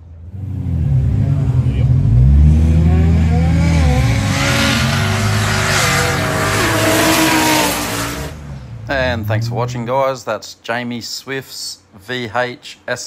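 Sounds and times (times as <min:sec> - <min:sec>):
drag car engine at full power: 0:00.0 - 0:09.4.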